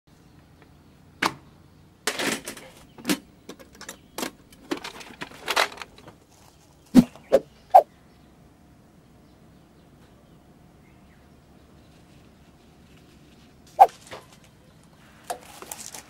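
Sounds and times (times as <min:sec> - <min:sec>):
short rustling swishes: 0:13.8 - 0:14.0.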